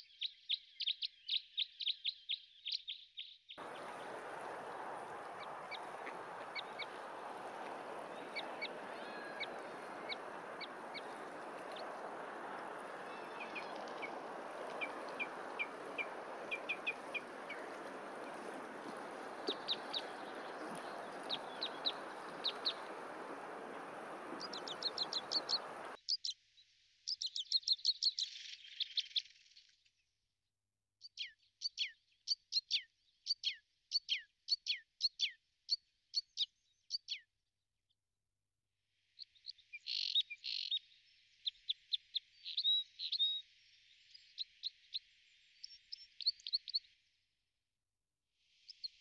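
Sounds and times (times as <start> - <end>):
small birds chirping: 0.0 - 26.4, 27.1 - 29.7, 39.2 - 46.9
background hiss: 3.6 - 26.0.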